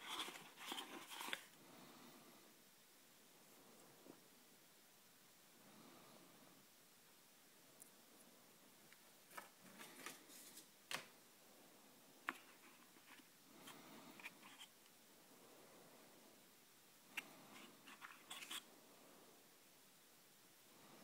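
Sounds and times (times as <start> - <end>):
cardboard box handling rustles: 0.0 - 1.5.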